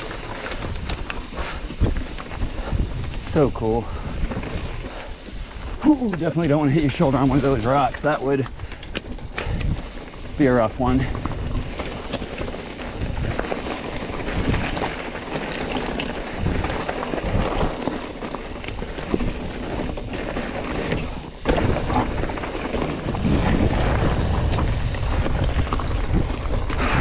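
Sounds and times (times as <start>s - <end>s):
wind on microphone: 0.0s - 5.8s, 8.5s - 14.9s, 18.8s - 27.0s
bike rattling over rocks: 0.0s - 27.0s.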